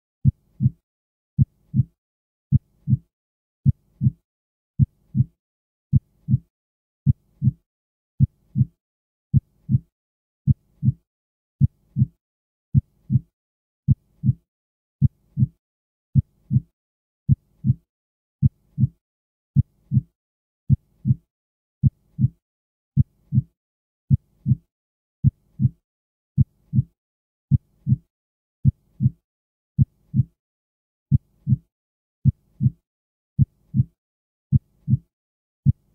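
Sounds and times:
heartbeat thumps: 32.2 - 32.8.

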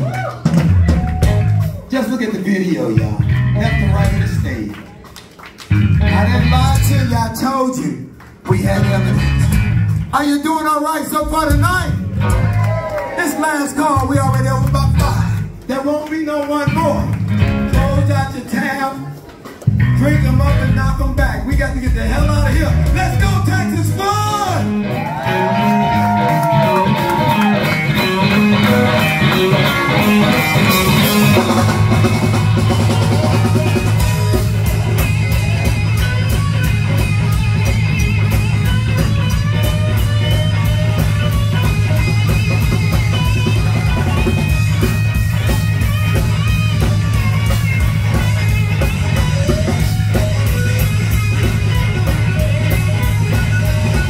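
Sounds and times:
live blues-rock band: 0.0 - 54.0
bending lead guitar note: 22.0 - 54.0.

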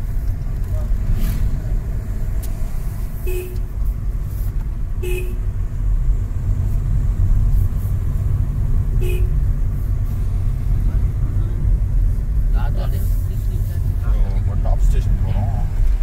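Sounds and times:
car road and engine rumble: 0.0 - 16.0
car horn toots: 3.2 - 3.7, 5.0 - 5.5, 9.0 - 9.4.

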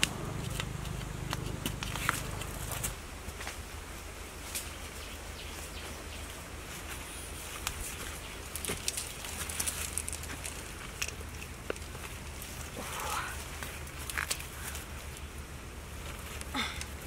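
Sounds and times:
steady outdoor hiss: 0.0 - 17.0.

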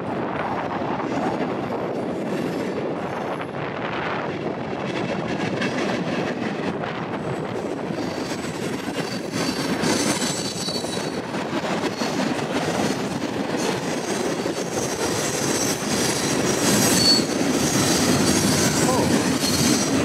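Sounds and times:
train wheels rumbling on rail: 0.0 - 20.0
high wheel squeal: 9.0 - 11.2, 15.4 - 20.0.

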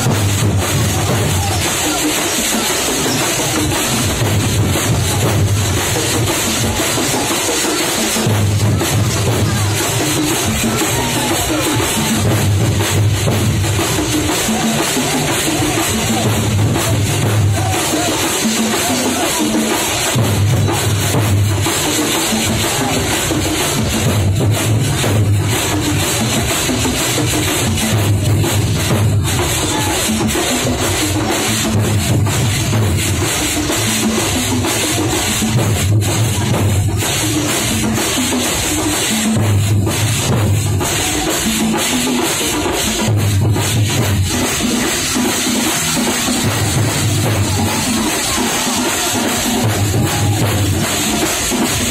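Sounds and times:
barrel drums playing: 0.0 - 51.9
brass hand cymbals clashing: 0.0 - 51.9.

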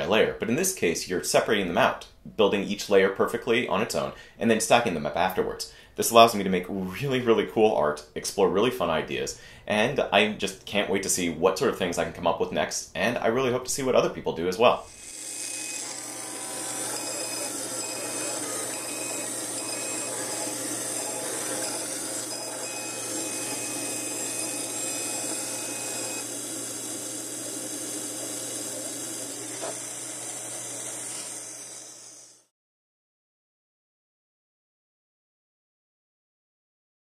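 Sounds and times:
cutting head high whines: 14.8 - 32.5
laser cutter fan hiss and hum: 15.1 - 32.1.

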